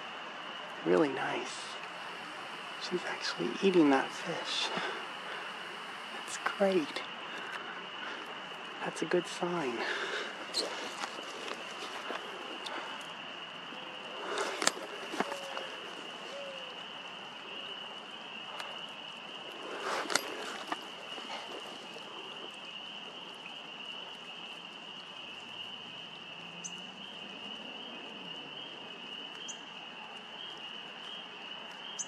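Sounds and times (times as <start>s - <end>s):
high-pitched distant chorus drone: 0.6s - 22.5s
crackle of dry leaves and twigs: 0.6s - 32.0s.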